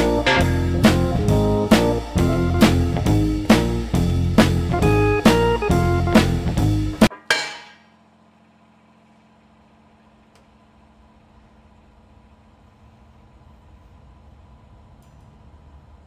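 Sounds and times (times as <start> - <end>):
blues guitar music with drums: 0.0 - 7.1.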